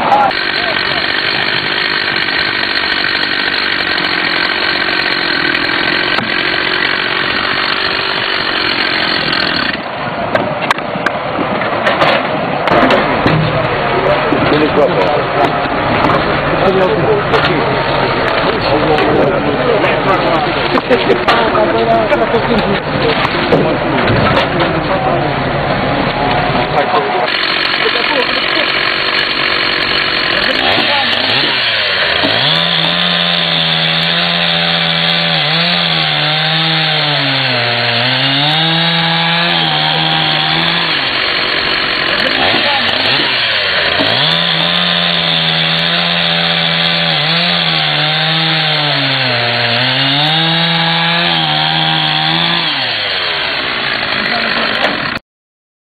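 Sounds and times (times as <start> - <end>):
chainsaw cutting log: 0.0 - 10.0, 14.5 - 24.6, 26.5 - 55.2.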